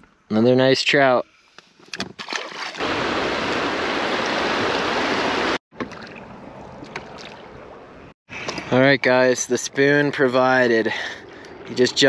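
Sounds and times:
river water rushing: 0:02.7 - 0:05.6.

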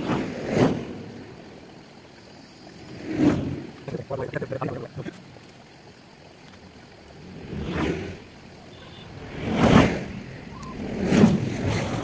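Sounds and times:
vehicles passing whoosh: 0:07.0 - 0:12.0.

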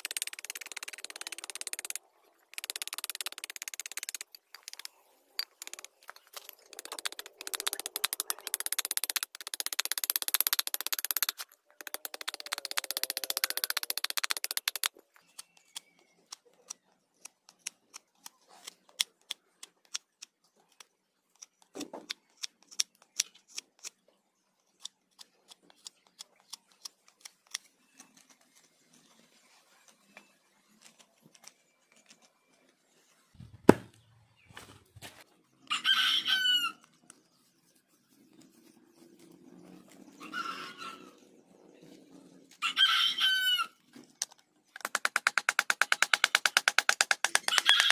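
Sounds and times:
knife clicking on wood: 0:00.0 - 0:21.5.

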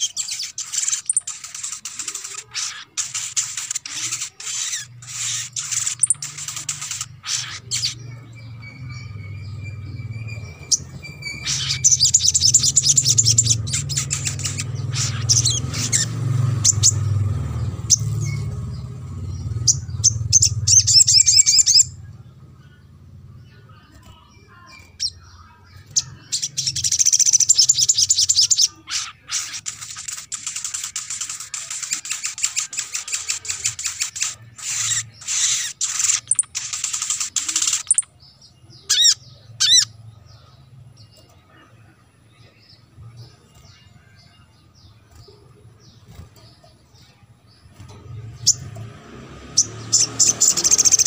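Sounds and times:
faint bird chirps: 0:00.0 - 0:48.8
bird trilling chatter: 0:00.0 - 0:51.0.

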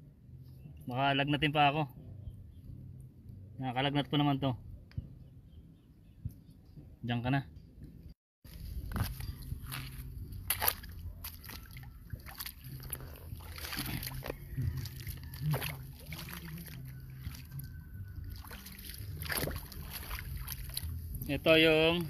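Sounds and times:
feet wading and splashing water: 0:08.5 - 0:21.6.

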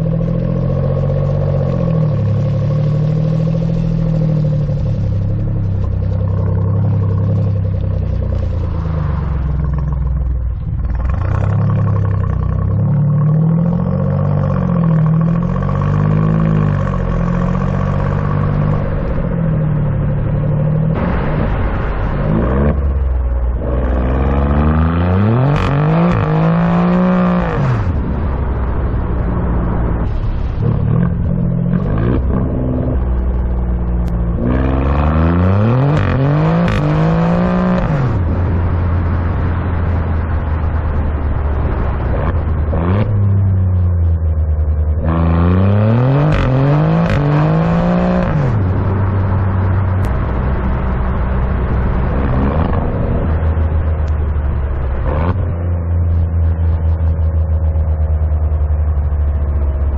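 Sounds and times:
car exhaust accelerating: 0:00.0 - 0:59.9
low exhaust drone cruising: 0:00.0 - 0:59.9.

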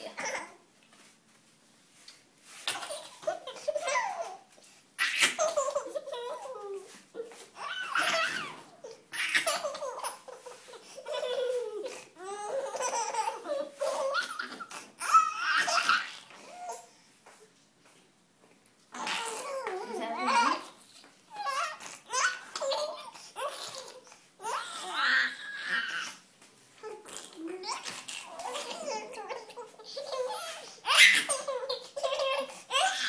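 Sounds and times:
baby laughing: 0:02.6 - 0:16.8, 0:21.3 - 0:26.2, 0:27.0 - 0:33.0.

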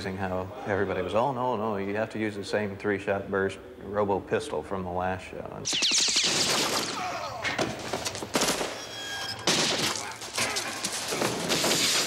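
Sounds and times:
gunshots: 0:05.7 - 0:08.8.

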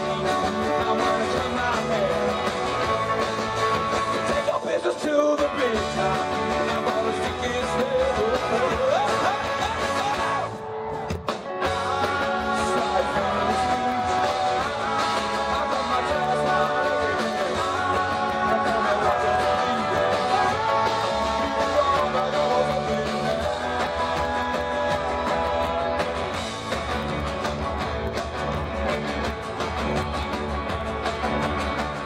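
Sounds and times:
acoustic guitars strumming: 0:00.0 - 0:10.5, 0:11.2 - 0:32.0
person singing: 0:00.0 - 0:10.6, 0:11.6 - 0:26.3
keyboard: 0:00.0 - 0:32.0.

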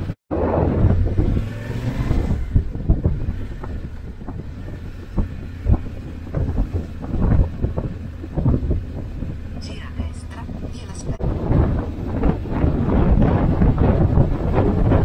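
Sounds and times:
motorcycle engine humming: 0:00.0 - 0:15.0
wind buffeting microphone: 0:00.0 - 0:15.0.

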